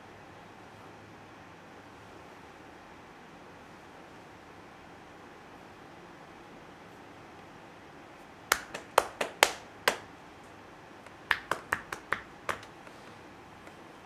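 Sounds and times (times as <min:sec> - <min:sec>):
hand percussion pops on shoulders: 0:08.5 - 0:10.1, 0:11.1 - 0:12.9.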